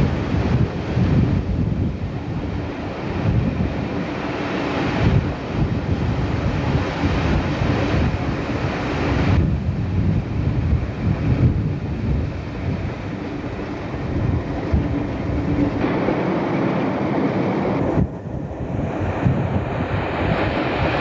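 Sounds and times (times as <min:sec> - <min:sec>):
wind buffeting microphone: 0:00.0 - 0:21.0
train rumbling: 0:10.8 - 0:21.0.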